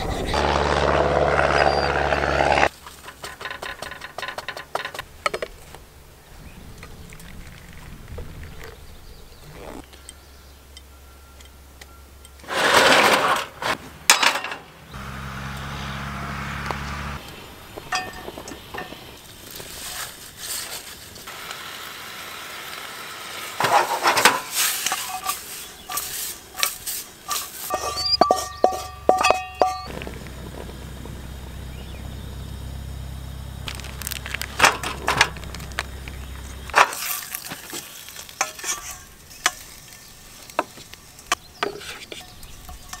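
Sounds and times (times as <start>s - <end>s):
spatula scraping in a wok: 12.5s - 13.8s, 23.6s - 29.9s, 36.9s - 40.5s
pots and utensils clinking: 17.9s - 19.1s, 23.6s - 29.9s, 36.8s - 40.1s, 41.6s - 43.0s.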